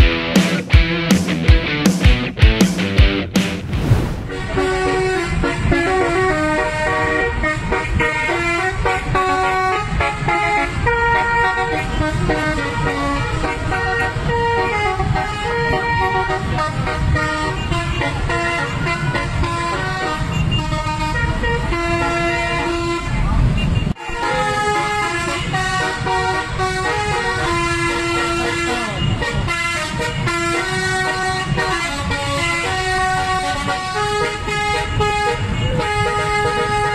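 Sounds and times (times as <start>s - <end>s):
air horns playing a tune: 4.3s - 23.2s, 24.0s - 36.9s
low engine and traffic rumble: 4.3s - 36.9s.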